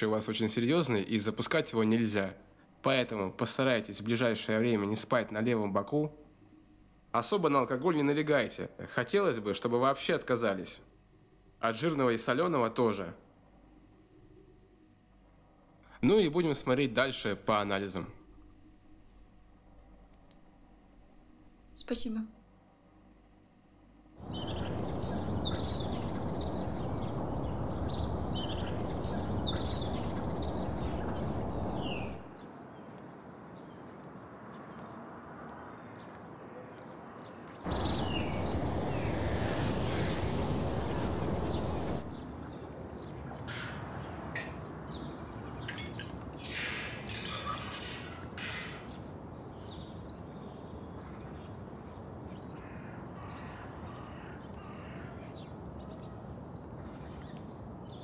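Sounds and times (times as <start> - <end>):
open-air noise: 0.0 - 58.0
sharp bird calls: 24.2 - 32.4, 37.7 - 42.4
small birds chirping: 24.2 - 33.9, 37.6 - 58.0.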